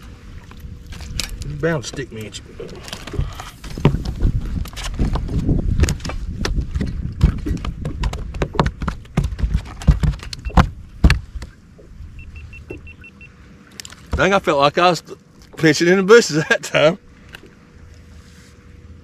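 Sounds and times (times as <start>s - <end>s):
steady low rumble: 0.0s - 19.0s
knocking and clattering in a boat: 0.9s - 13.0s, 14.0s - 14.7s.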